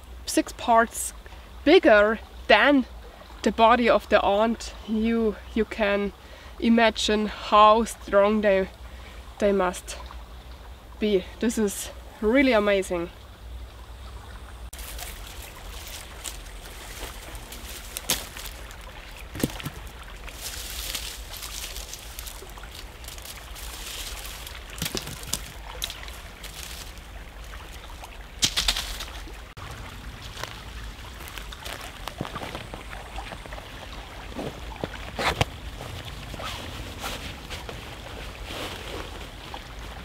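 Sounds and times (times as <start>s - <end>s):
small stream flowing: 0.0s - 40.0s
dry leaves and twigs crackling: 14.7s - 40.0s.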